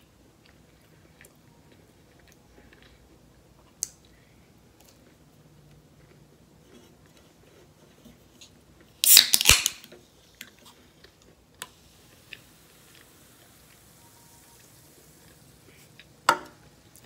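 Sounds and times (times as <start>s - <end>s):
can opening pop and hiss: 9.0s - 9.9s.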